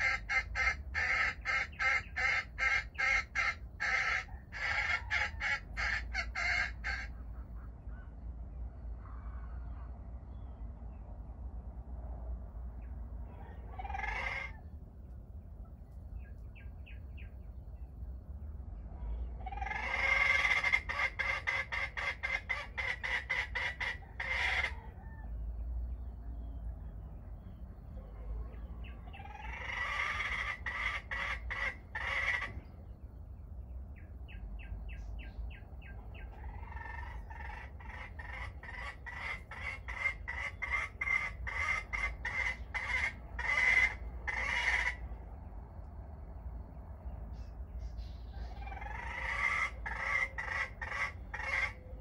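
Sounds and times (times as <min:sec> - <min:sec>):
junglefowl calling: 0:00.0 - 0:08.2, 0:13.2 - 0:14.7, 0:19.0 - 0:25.3, 0:27.9 - 0:32.7, 0:34.3 - 0:45.2, 0:47.3 - 0:52.0.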